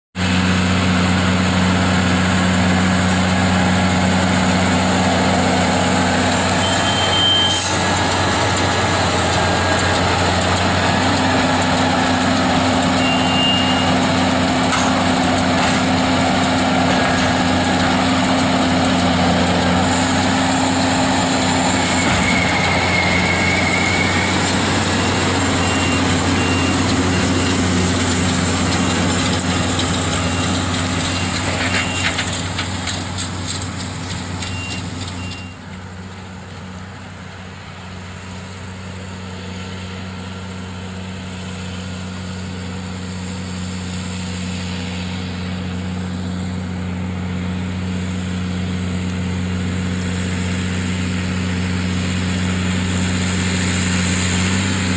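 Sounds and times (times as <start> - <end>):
baler machinery working: 0.2 - 36.2
tractor engine drone: 0.2 - 54.9.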